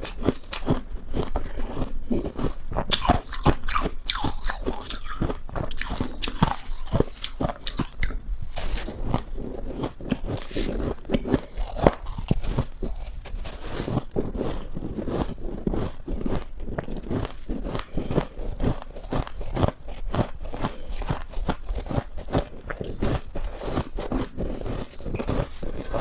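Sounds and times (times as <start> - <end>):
crunching and chewing frost: 0.0 - 26.0.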